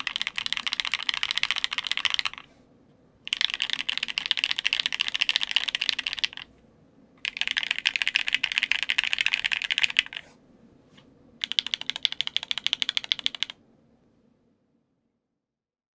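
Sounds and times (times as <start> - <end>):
mechanical keyboard typing: 0.0 - 2.5, 3.3 - 6.5, 7.2 - 10.2, 11.4 - 13.6.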